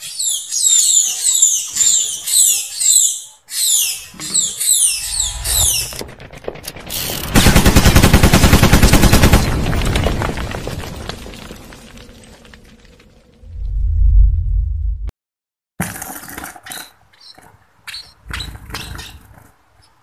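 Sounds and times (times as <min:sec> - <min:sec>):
low rumble: 0:13.2 - 0:15.1.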